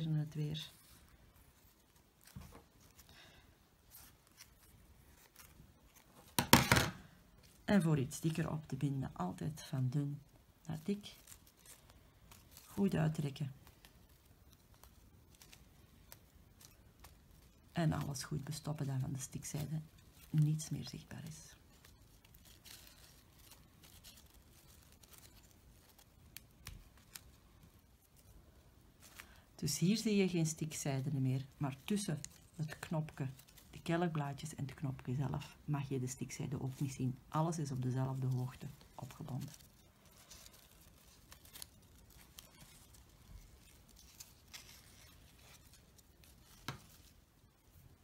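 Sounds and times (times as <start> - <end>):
fabric rustling: 0.0 - 8.6, 10.0 - 48.0
light ticks of thread handling: 10.0 - 29.6.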